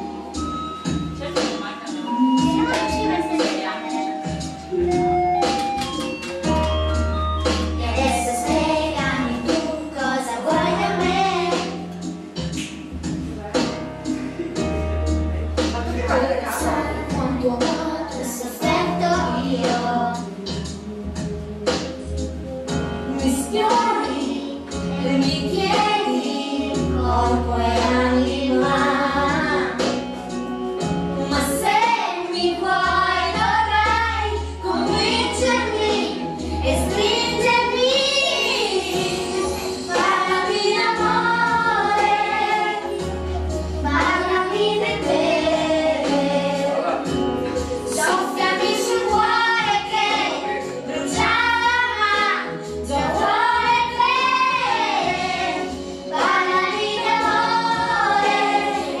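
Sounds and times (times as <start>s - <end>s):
backing music with bass line: 0.0s - 59.0s
children singing: 7.4s - 11.9s, 23.2s - 29.9s, 31.4s - 59.0s.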